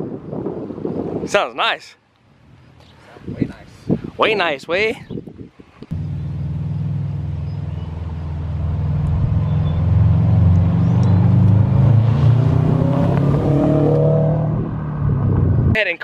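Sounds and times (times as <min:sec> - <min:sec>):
car engine driving past: 0:05.9 - 0:15.6.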